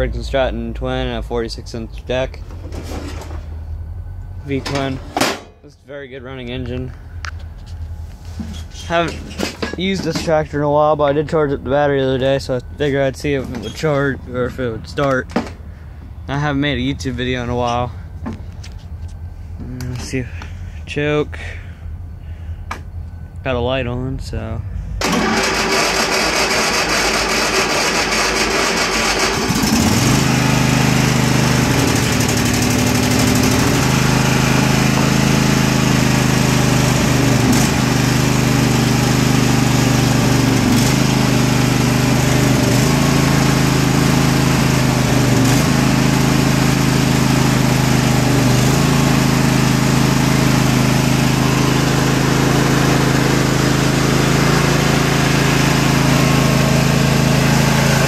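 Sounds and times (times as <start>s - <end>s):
electric starter cranking: 25.0s - 58.0s
mower engine running: 25.0s - 58.0s.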